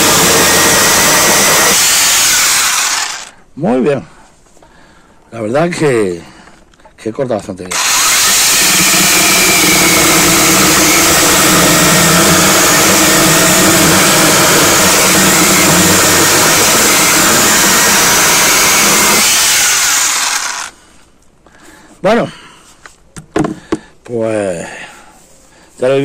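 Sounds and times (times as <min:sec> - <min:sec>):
chainsaw cutting through log: 0:00.0 - 0:03.3, 0:07.7 - 0:20.8.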